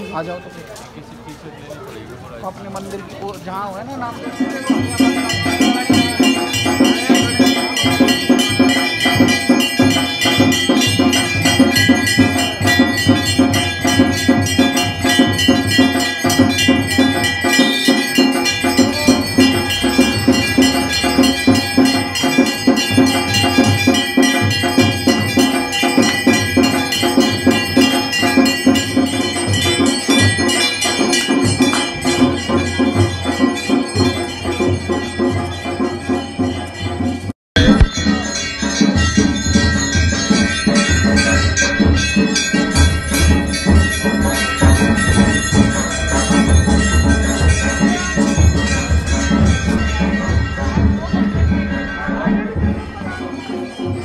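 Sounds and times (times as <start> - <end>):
temple bells ringing rapidly: 0.0 - 54.0
steady low beat: 37.6 - 53.3.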